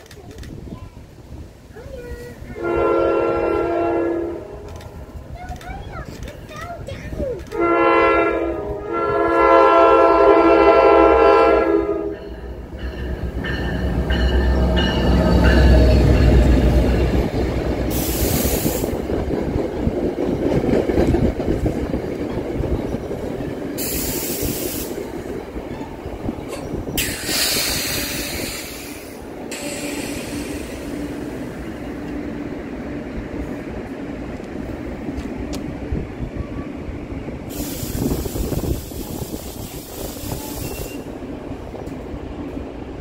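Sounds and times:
train wheels clattering on rails: 4.6s - 7.6s, 12.1s - 32.3s
high hissing from wheels: 17.8s - 19.1s, 23.8s - 25.4s, 26.8s - 31.8s, 37.4s - 41.7s.

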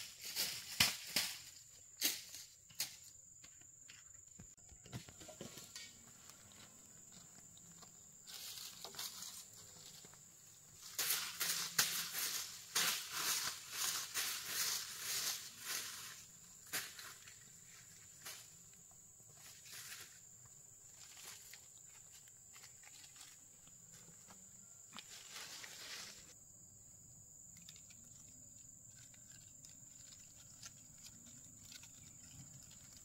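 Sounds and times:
broom sweeping dry leaves: 0.0s - 2.5s, 8.3s - 10.1s, 10.7s - 18.5s, 19.4s - 20.2s, 25.0s - 26.4s.

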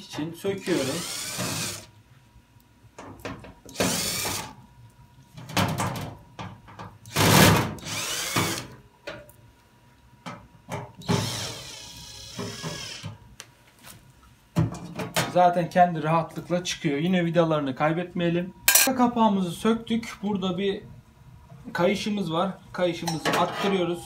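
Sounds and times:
cordless drill motor whirring: 0.7s - 1.9s, 3.7s - 4.5s, 7.1s - 8.7s, 11.2s - 13.1s.

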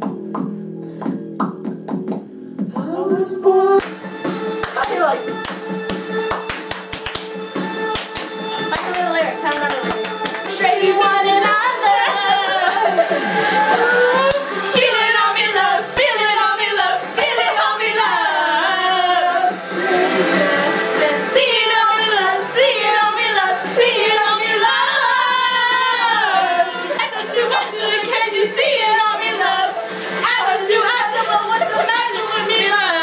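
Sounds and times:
girls singing unaccompanied: 10.4s - 33.0s.

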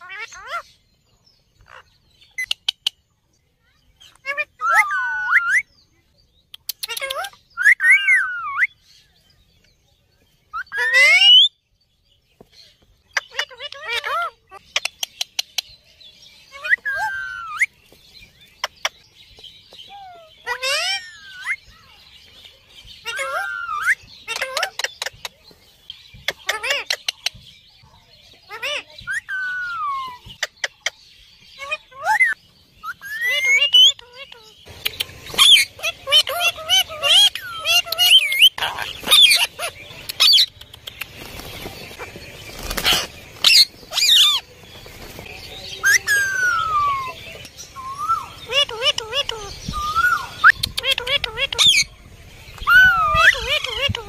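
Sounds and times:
parrot calls: 0.0s - 0.6s, 4.2s - 5.7s, 13.2s - 15.2s, 16.5s - 17.7s, 19.9s - 21.6s, 23.0s - 25.1s, 31.6s - 41.0s, 42.8s - 44.4s, 45.8s - 51.9s, 52.6s - 54.0s.

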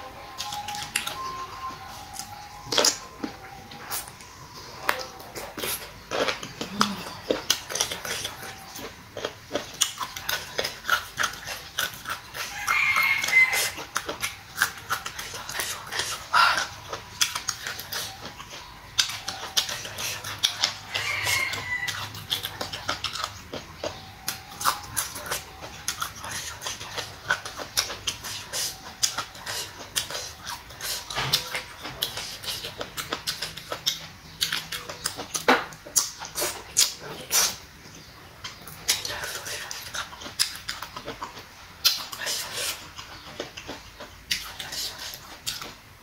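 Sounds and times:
crunchy chewing with smacks: 0.0s - 46.0s.

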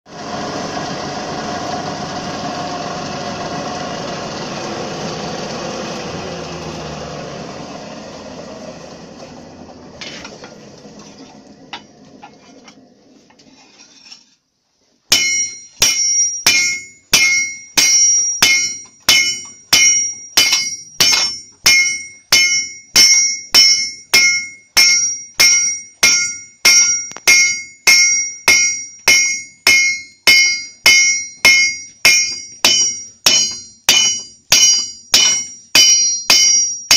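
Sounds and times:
forge blower air rush: 0.1s - 10.0s
hammer striking steel on anvil: 15.1s - 36.9s.

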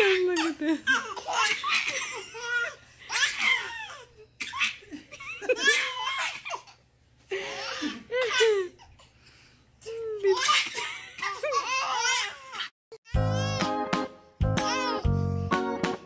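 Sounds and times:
babies laughing: 0.0s - 6.8s, 10.3s - 13.7s.

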